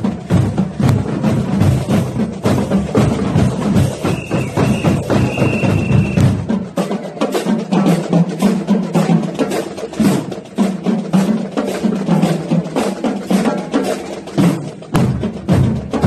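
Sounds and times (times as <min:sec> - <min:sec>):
bass drum beat: 0:00.0 - 0:06.5
snare drums playing: 0:00.0 - 0:16.0.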